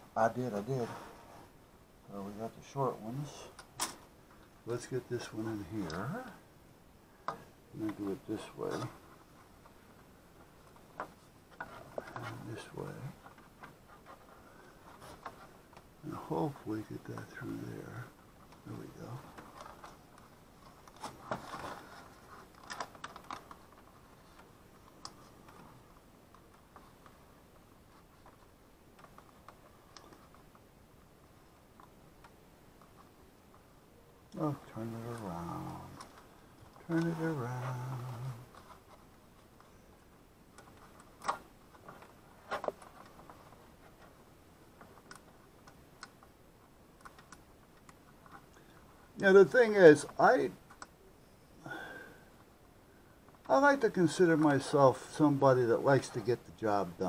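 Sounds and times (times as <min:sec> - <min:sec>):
wires rustling: 0:07.2 - 0:51.6.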